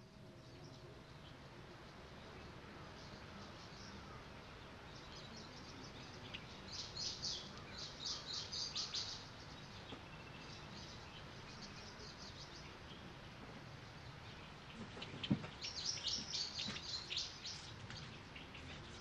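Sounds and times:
bird chirping: 0.0s - 19.0s.

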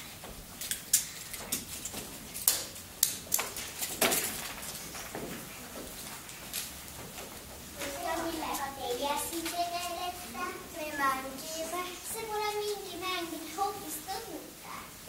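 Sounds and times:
footsteps on wooden stage: 3.7s - 9.9s.

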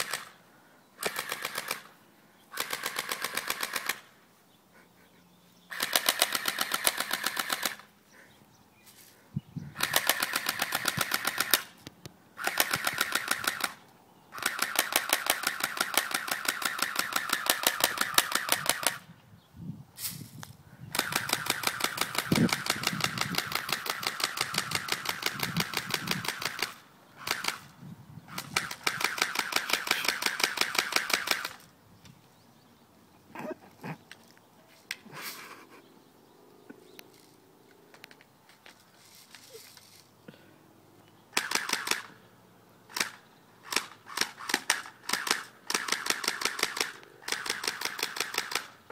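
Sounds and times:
airsoft rifle automatic fire: 0.0s - 0.4s, 1.0s - 1.9s, 2.5s - 4.1s, 5.7s - 7.9s, 9.8s - 11.7s, 12.4s - 13.8s, 14.4s - 19.0s, 20.9s - 27.7s, 28.3s - 31.6s, 41.4s - 42.1s, 42.9s - 48.8s.

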